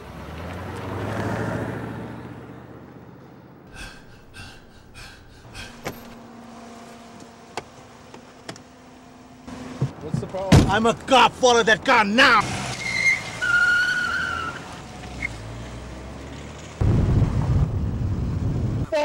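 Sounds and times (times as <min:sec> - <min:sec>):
car passing: 0:00.0 - 0:08.1.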